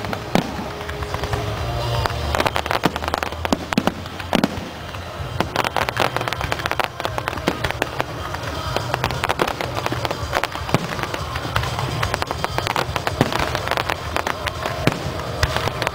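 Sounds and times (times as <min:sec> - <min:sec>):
fireworks bangs and crackles: 0:00.0 - 0:15.9
music playing: 0:00.0 - 0:15.9.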